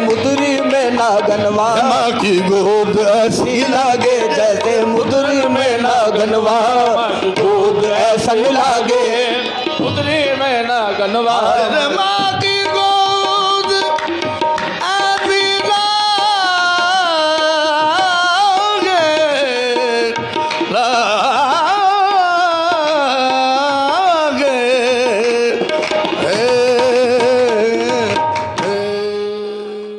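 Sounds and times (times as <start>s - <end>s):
man singing wordless melodic runs: 0.0s - 14.0s
tabla: 0.0s - 29.9s.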